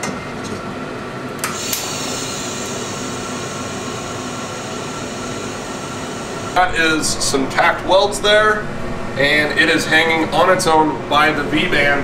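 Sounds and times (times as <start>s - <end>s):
welding arc hissing: 1.5s - 7.1s.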